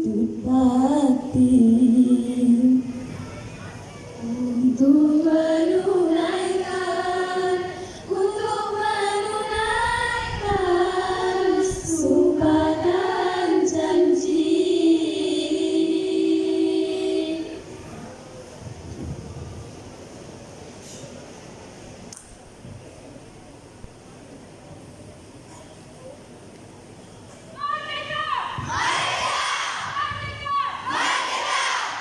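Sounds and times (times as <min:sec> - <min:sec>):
women's choir singing: 0:04.2 - 0:17.8, 0:28.6 - 0:32.0.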